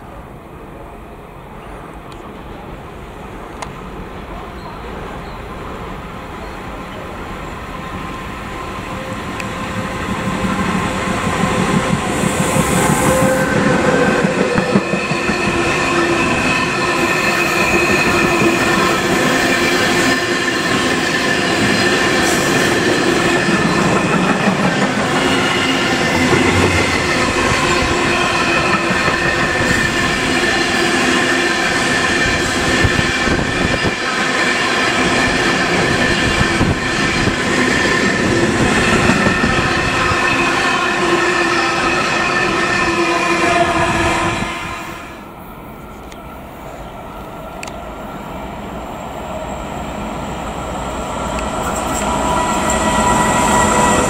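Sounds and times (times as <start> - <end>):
train wheels rumbling on rails: 1.7 - 54.0
high wheel squeal: 10.4 - 44.4, 51.6 - 54.0.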